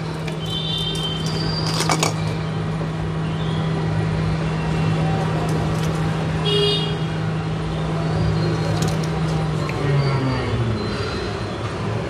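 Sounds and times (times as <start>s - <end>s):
road traffic noise: 0.0s - 12.0s
vehicle horn toot: 6.4s - 7.1s.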